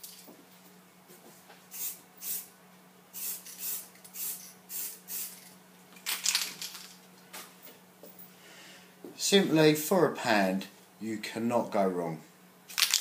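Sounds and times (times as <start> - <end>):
spray can hissing bursts: 1.7 - 2.5, 3.2 - 5.4.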